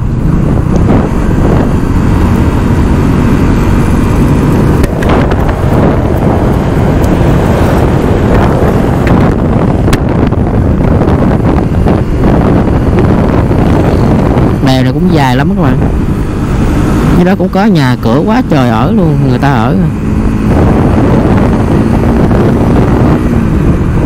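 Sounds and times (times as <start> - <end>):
vehicle engine and road noise: 0.0 - 24.0
wind rushing over microphone: 0.0 - 24.0.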